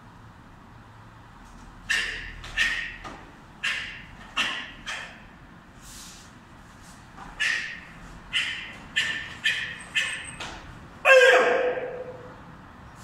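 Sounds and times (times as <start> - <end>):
person shouting: 11.1 - 12.2.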